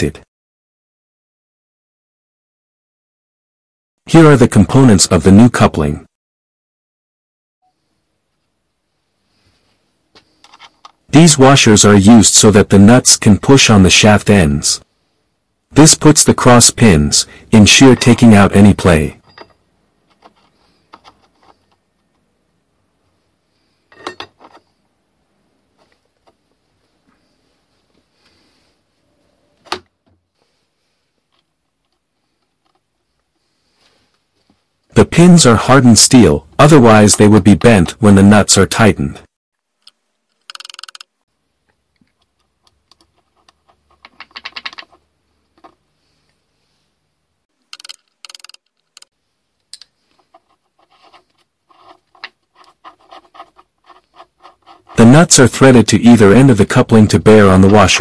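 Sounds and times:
metal parts clinking: 23.9 - 24.7, 40.3 - 41.0, 47.7 - 49.1
metal nuts clicking and rattling: 39.8 - 41.2, 42.2 - 45.8, 47.6 - 49.1.

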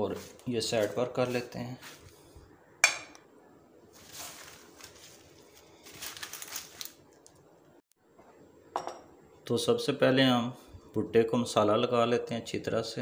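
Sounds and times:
dry corn husks rustling: 3.9 - 7.4
glass plate knocking on table: 8.7 - 9.1.

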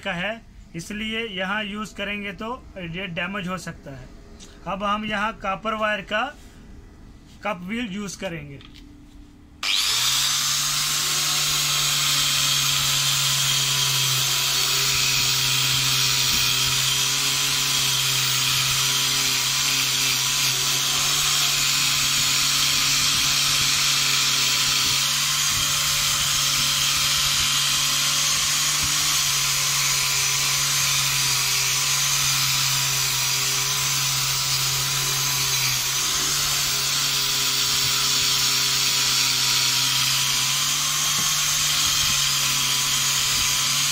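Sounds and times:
angle grinder whining: 9.6 - 43.9.

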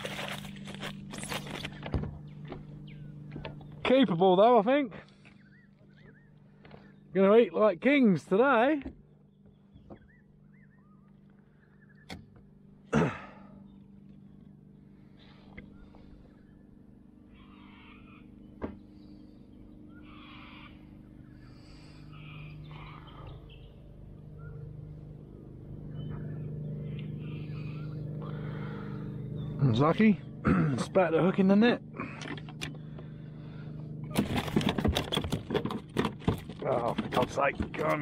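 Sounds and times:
net rustling: 0.0 - 1.8
steady low hum: 0.0 - 38.0.

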